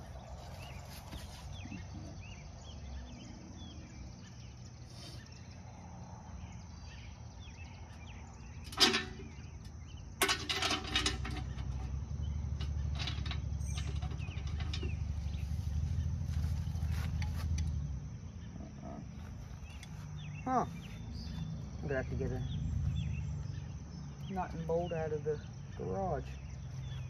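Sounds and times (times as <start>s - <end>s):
faint bird chirps: 0.0s - 5.8s, 18.3s - 27.0s
low steady rumble: 9.3s - 25.8s.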